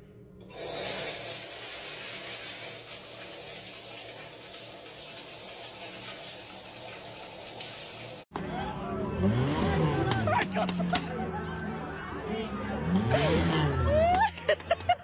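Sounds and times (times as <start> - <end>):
shower spray splashing: 0.5 - 8.3.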